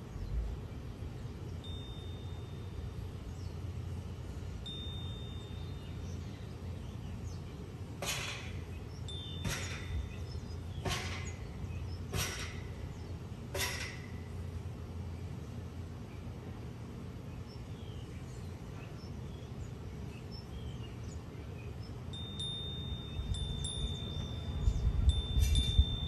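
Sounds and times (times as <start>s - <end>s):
wind and sea rumble: 22.4s - 26.0s.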